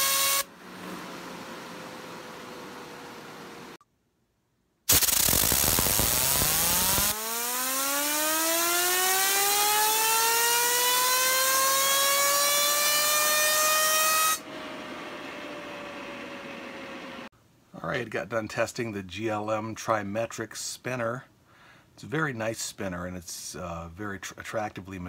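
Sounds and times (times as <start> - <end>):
fidget spinner whine: 0.0 - 3.8, 4.9 - 17.3
compressed air hissing: 4.9 - 7.1.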